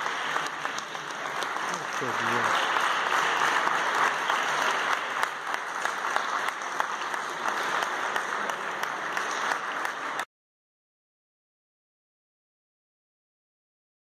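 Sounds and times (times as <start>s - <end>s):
spectators applauding: 0.0s - 10.3s.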